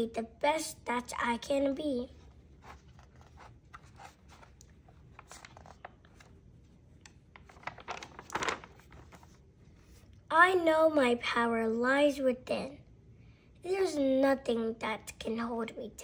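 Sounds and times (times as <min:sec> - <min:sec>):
paper rustling: 0:02.2 - 0:10.2
page turning swish: 0:02.6 - 0:06.3.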